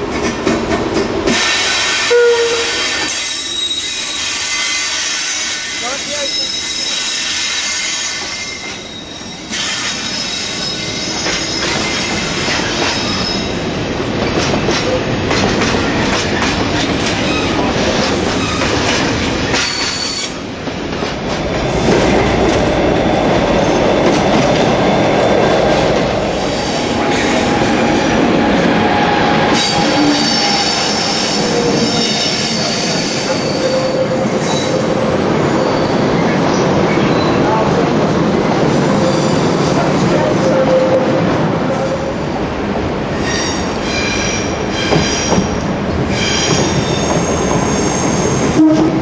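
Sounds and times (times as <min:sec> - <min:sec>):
freight train wagons rolling: 0:00.0 - 0:49.0
high-pitched wheel squeal: 0:02.2 - 0:13.5, 0:29.5 - 0:34.8.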